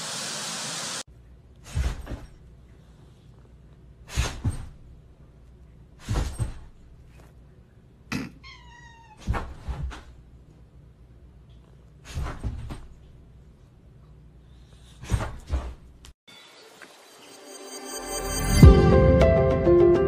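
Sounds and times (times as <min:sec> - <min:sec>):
cat meow: 0:08.4 - 0:09.2.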